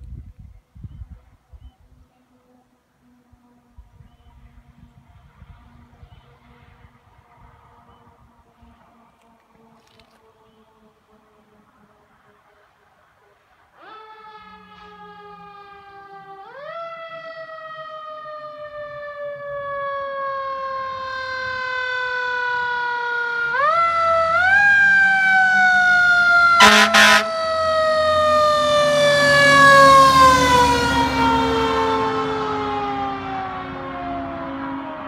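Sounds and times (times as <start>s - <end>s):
fire engine siren: 2.5s - 35.0s
truck engine rumble: 21.5s - 35.0s.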